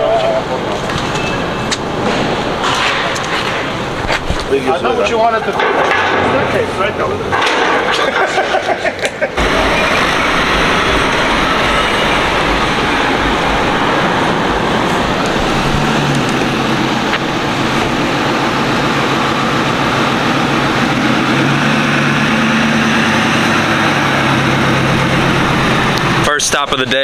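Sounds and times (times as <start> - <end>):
truck engines and tires: 0.0 - 27.0
low engine hum: 9.4 - 27.0.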